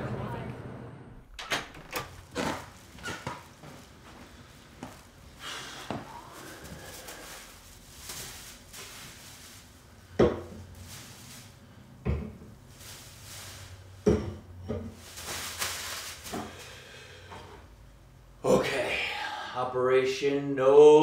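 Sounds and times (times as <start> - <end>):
plastic bag rustling: 2.1 - 14.1, 14.9 - 17.0
knocks and thumps: 14.0 - 15.0.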